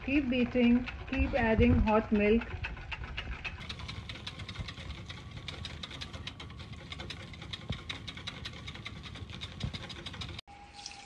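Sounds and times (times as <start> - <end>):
whisk clicking in metal bowl: 0.0 - 10.4
milk being poured: 10.6 - 11.0.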